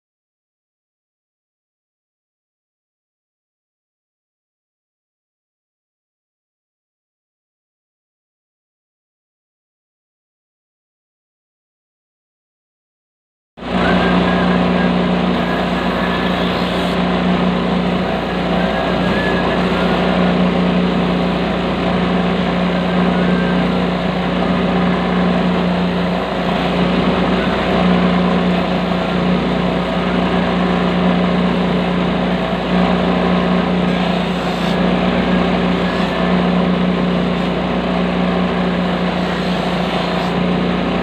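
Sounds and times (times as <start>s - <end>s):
machine motor humming: 13.6s - 41.0s
sanding wheel grinding sole: 13.6s - 41.0s.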